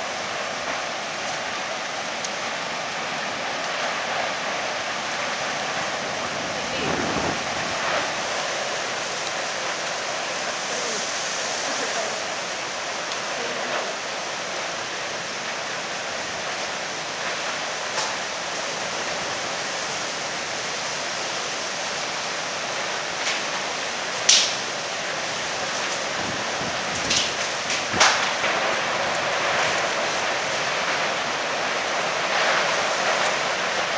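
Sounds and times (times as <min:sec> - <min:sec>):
driving rain: 0:00.0 - 0:33.9
storm wind roaring: 0:02.5 - 0:12.8, 0:24.9 - 0:33.9.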